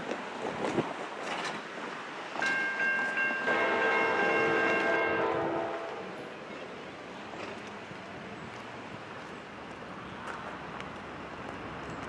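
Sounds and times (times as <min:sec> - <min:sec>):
locomotive air horn blowing: 0:03.4 - 0:06.2.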